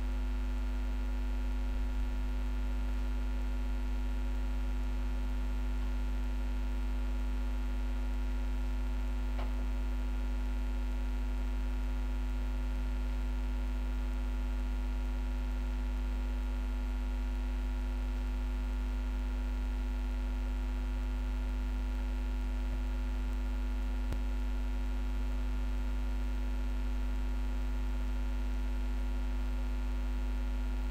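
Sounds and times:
low electrical hum: 0:00.0 - 0:30.9.

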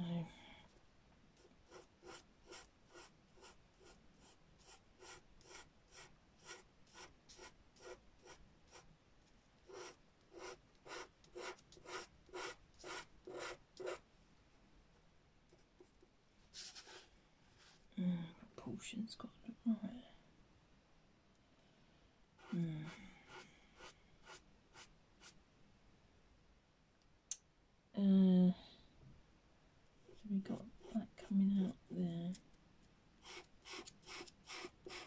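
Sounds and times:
pencil scratching on paper: 0:01.4 - 0:08.9, 0:09.6 - 0:14.0, 0:22.4 - 0:25.4, 0:30.1 - 0:31.8, 0:33.2 - 0:35.0.

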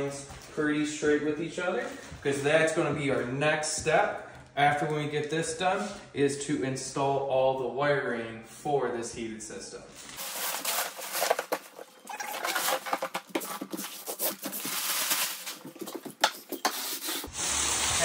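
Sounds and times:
plastic membrane crinkling: 0:10.1 - 0:17.2.

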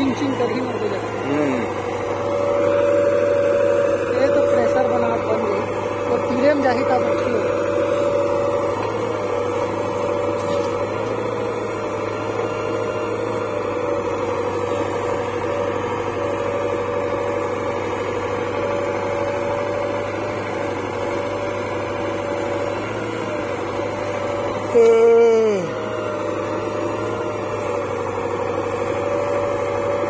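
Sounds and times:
diesel engine running under load: 0:00.0 - 0:30.0
hydraulic whine: 0:00.0 - 0:30.0.

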